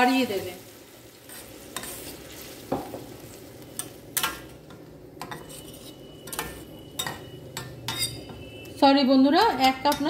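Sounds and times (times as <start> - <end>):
steady sizzle: 0.0 - 10.0
metal spatula scraping pan: 5.2 - 10.0.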